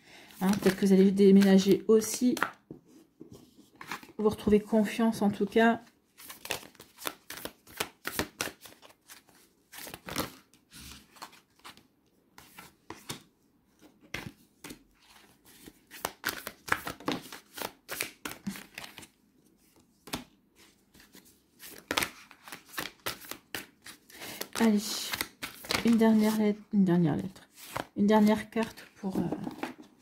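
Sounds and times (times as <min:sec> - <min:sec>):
playing cards being shuffled: 0:14.2 - 0:19.1, 0:21.0 - 0:26.5.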